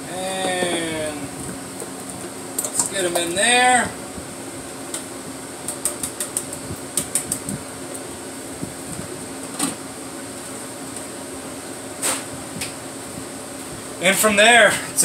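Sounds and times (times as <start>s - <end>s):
fan hum: 0.0s - 15.0s
can tapping against plastic tub: 0.4s - 0.9s.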